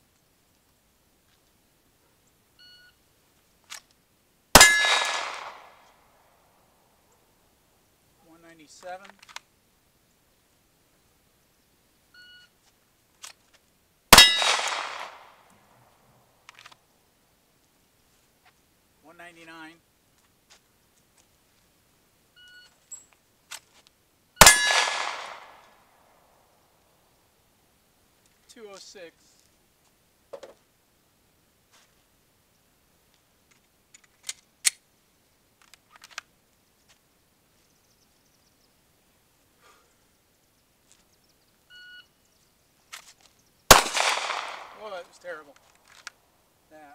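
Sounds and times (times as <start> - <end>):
steel target ringing: 4.6 - 5.2, 14.2 - 14.6, 24.4 - 25.0
pistol shot: 4.6 - 5.8, 14.1 - 15.4, 24.4 - 25.7, 43.7 - 45.0.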